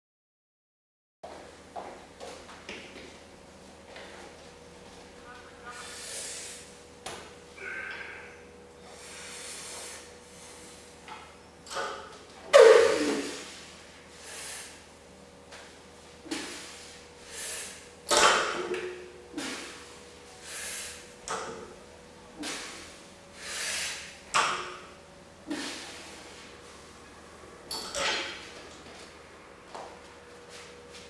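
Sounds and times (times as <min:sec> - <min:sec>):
heavy breathing: 0:07.5 - 0:11.0
barbell clanking on rubber mat: 0:27.7 - 0:28.5.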